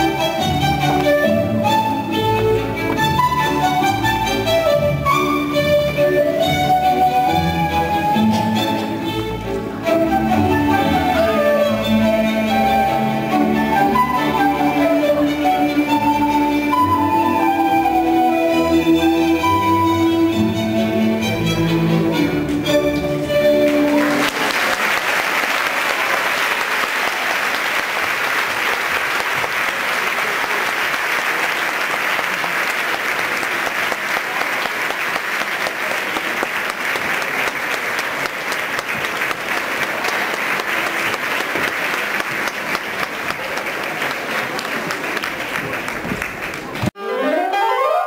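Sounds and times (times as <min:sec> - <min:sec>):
audience applauding: 0:23.6 - 0:47.0.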